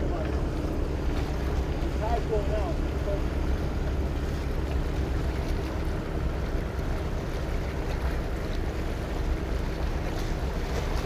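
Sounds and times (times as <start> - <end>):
sea water washing on rocks: 0.0 - 11.0.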